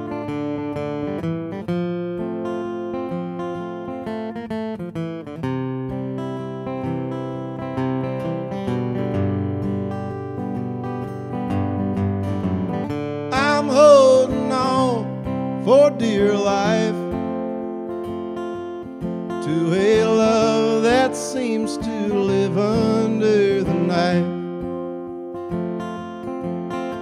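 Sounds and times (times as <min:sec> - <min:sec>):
acoustic guitar: 0:00.0 - 0:27.0
man singing: 0:13.3 - 0:17.2, 0:19.3 - 0:24.5.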